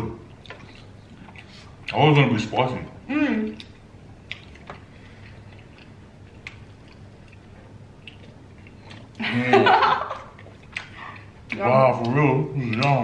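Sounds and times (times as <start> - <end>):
chewing and mouth clicks: 0.3 - 2.0, 3.5 - 9.2, 10.2 - 13.0.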